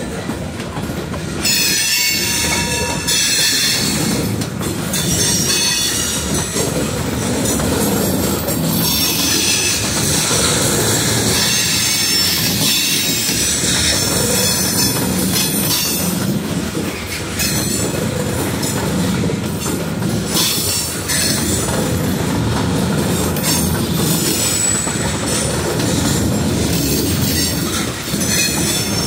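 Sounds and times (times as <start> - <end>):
train wheels rumbling on rails: 0.0 - 29.0
wheel squeal: 8.7 - 16.2, 23.4 - 25.5.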